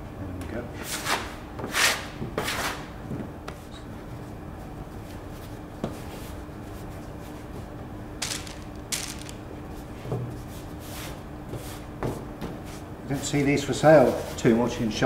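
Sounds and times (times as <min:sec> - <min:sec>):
paper rustles: 0:08.2 - 0:09.4.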